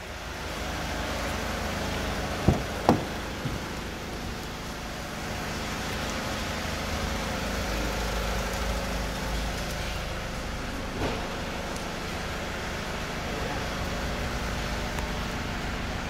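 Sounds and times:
soft knock: 0:02.5 - 0:03.6.

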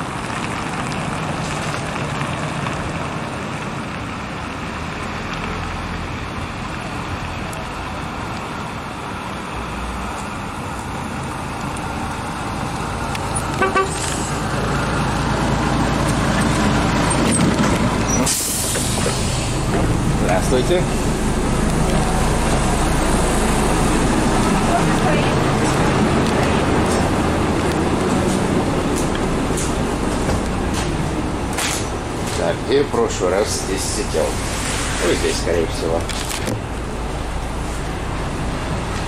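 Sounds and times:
bus diesel engine rumble: 0:00.0 - 0:39.0
street traffic: 0:00.0 - 0:39.0
bus horn toots: 0:13.5 - 0:14.2.

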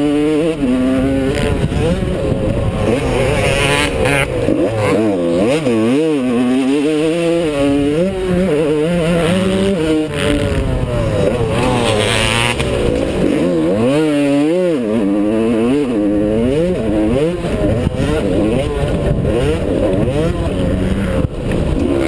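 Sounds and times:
dirt bike engine revving: 0:00.0 - 0:22.0.

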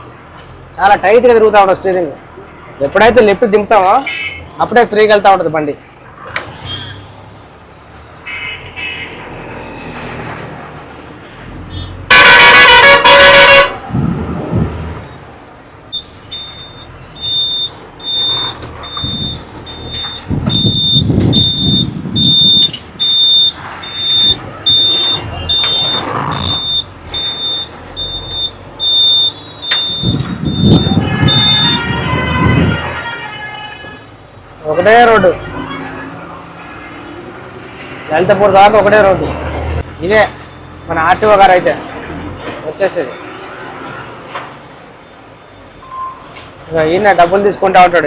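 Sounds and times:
vehicle horn blast: 0:12.1 - 0:13.8, 0:30.8 - 0:34.1
truck reversing alarm beeps: 0:15.9 - 0:32.5, 0:40.1 - 0:41.3, 0:45.0 - 0:46.4
truck engine revving: 0:17.8 - 0:28.9.

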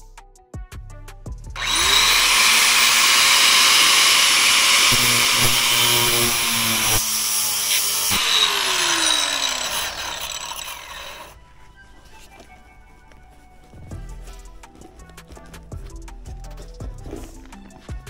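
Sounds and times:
angle grinder cutting metal: 0:01.6 - 0:11.4.

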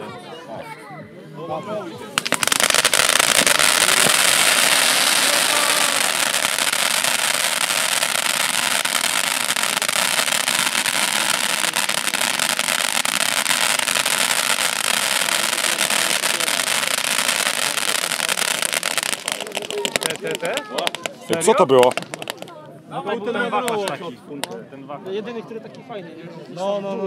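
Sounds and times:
fireworks crackling: 0:02.0 - 0:22.6.

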